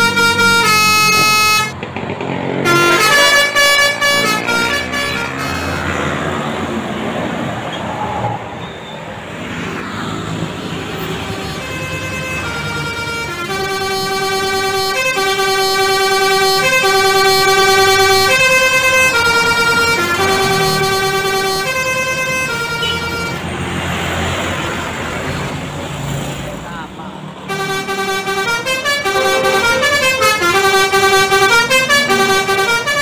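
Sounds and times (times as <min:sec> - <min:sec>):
musical bus horn playing: 0:00.0 - 0:01.8, 0:02.6 - 0:06.4, 0:11.0 - 0:23.4, 0:27.5 - 0:33.0
bus engine: 0:00.0 - 0:33.0
traffic noise: 0:00.0 - 0:33.0.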